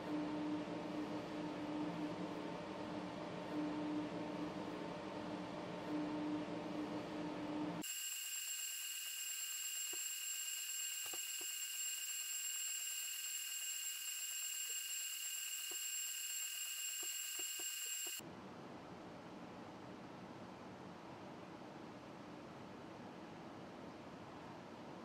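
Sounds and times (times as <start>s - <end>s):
high-pitched motor whine: 7.4s - 18.2s.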